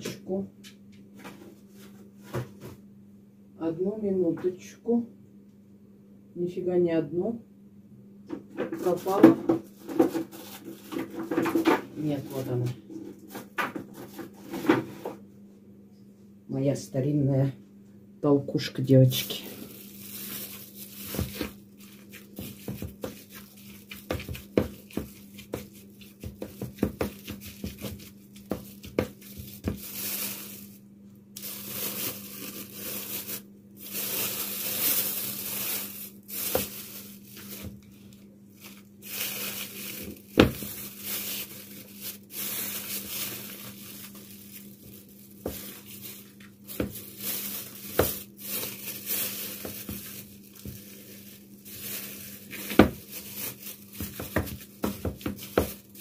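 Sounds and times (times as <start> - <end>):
plastic bag crinkling: 19.0 - 56.0.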